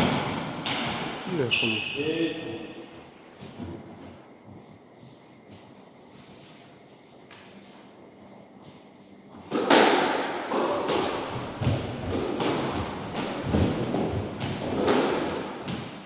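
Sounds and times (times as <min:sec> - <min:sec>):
squash ball striking rackets and walls: 0:00.0 - 0:01.8, 0:09.4 - 0:16.0.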